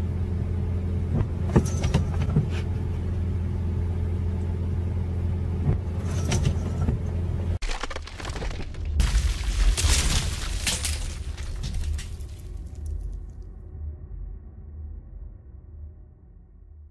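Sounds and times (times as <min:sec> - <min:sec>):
car engine hum inside cabin: 0:00.0 - 0:07.6.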